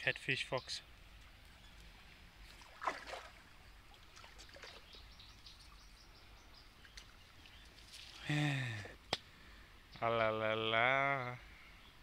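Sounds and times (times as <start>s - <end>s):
birds chirping: 0.0s - 12.0s
fish splashing in water: 2.5s - 4.9s.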